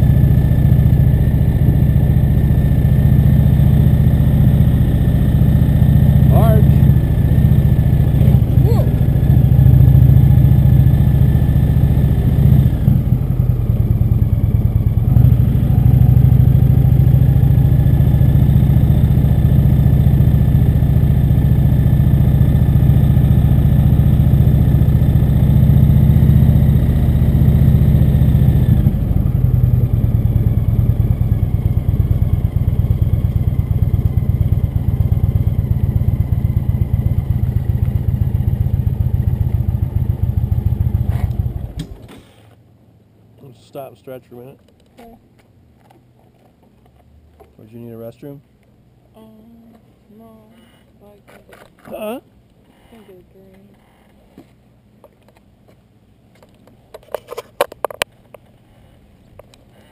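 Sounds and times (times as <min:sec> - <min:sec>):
motorcycle engine running: 0:00.0 - 0:42.1.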